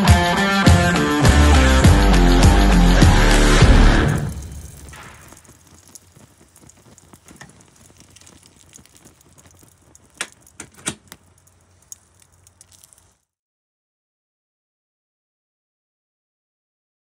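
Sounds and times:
fire crackling and popping: 1.0 - 13.3.

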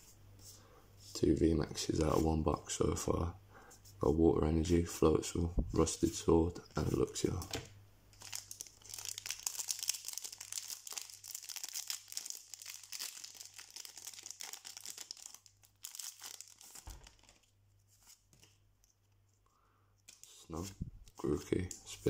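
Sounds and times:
foil wrapper crinkling and tearing: 8.2 - 17.5.

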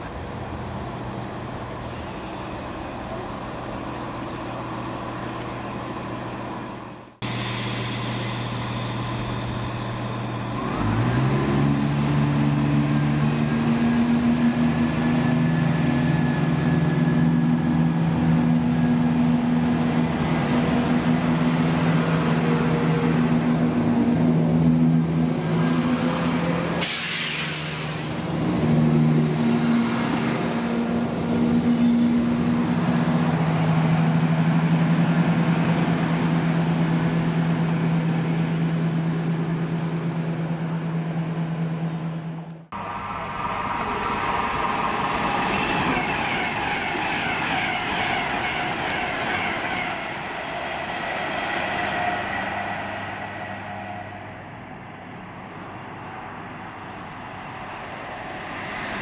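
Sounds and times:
diesel train engine droning: 0.0 - 59.0
burst of hiss: 26.8 - 28.2.

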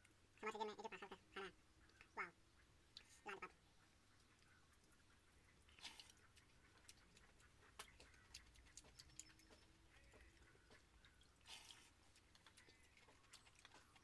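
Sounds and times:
wet clicks of eating by hand: 4.2 - 14.0.

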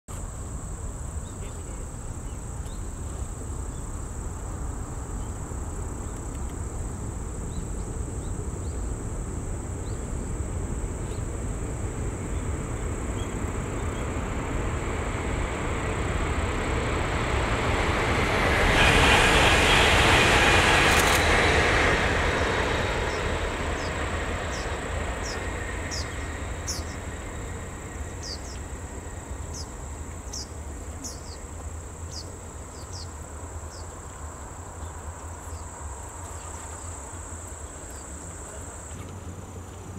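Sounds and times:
insect chirps: 0.1 - 39.9
train passing at speed: 0.2 - 39.9.

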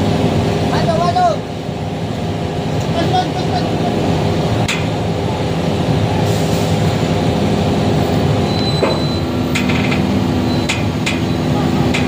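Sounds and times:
excavator diesel engine under load: 0.0 - 12.0
sharp knocks: 8.8 - 11.3.

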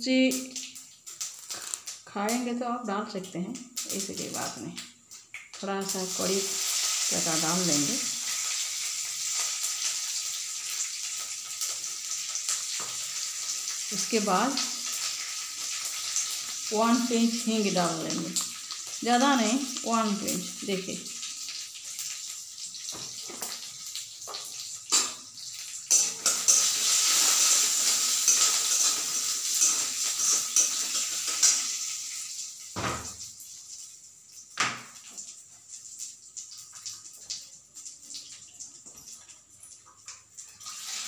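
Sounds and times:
spices sizzling in hot oil: 0.0 - 41.0
metal spatula scraping a pan: 25.9 - 31.8.

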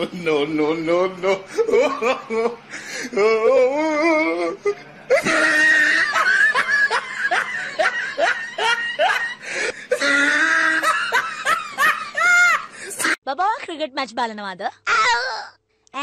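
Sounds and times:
person laughing loudly: 1.2 - 2.6, 5.1 - 13.2.

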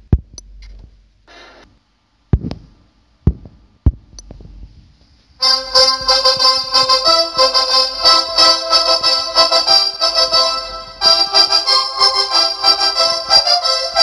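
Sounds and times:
sharp knocks: 3.3 - 4.5
keyboard background music: 5.4 - 14.0.

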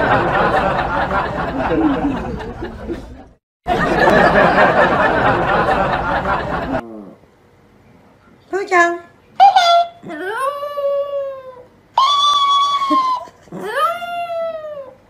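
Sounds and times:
crowd chattering and laughing: 0.0 - 6.8.

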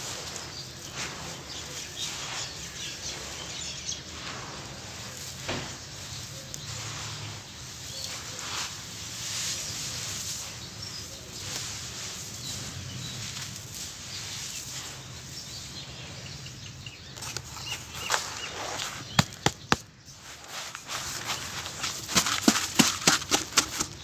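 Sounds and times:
dirt falling and crumbling: 0.0 - 24.0.

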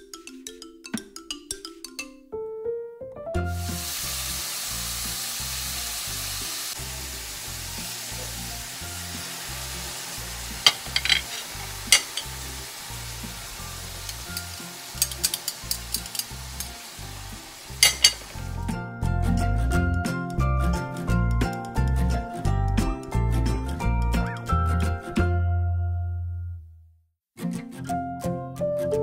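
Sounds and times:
background music with bass: 3.2 - 26.7
shrimp sizzling in a pan: 3.5 - 18.6
utensil scraping a pan: 10.5 - 12.5, 17.8 - 18.3.

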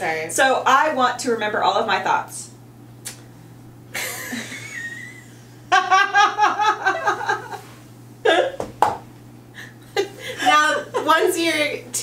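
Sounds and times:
women laughing: 3.9 - 8.6, 9.6 - 11.3.

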